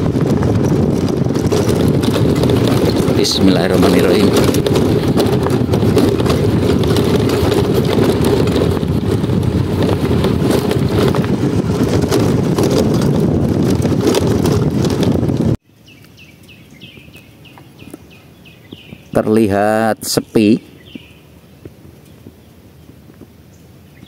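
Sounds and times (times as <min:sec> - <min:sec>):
knocks and rattles: 0:00.0 - 0:15.6
wind on microphone: 0:00.0 - 0:15.6, 0:16.2 - 0:24.0
road noise: 0:00.0 - 0:24.0.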